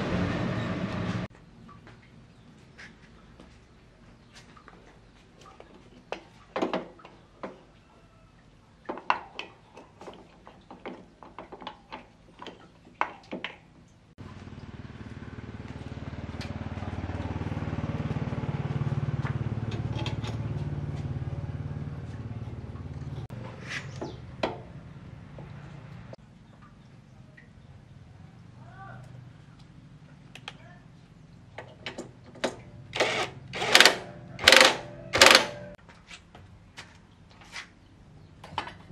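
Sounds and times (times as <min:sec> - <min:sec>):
motorcycle engine running: 0:14.2 - 0:23.4.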